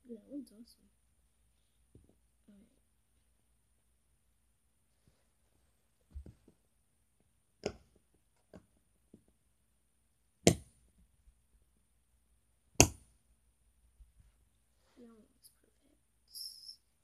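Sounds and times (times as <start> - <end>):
sharp knocks on plastic: 10.4 - 10.7, 12.8 - 13.1.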